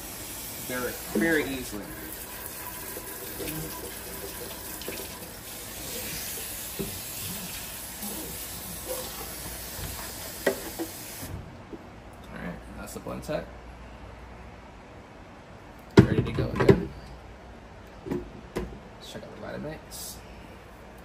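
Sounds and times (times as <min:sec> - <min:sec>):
tap water running: 0:00.0 - 0:11.3.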